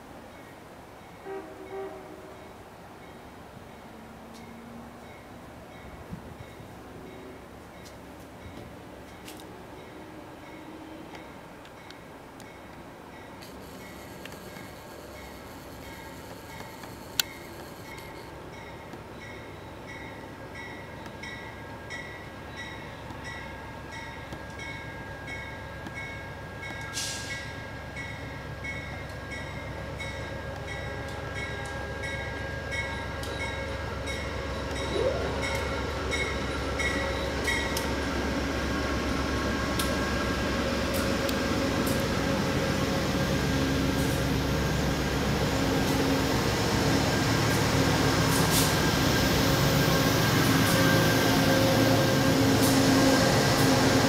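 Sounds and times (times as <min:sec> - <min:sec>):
diesel locomotive engine and wheels: 0:00.0 - 0:54.0
brief hiss: 0:26.9 - 0:27.6.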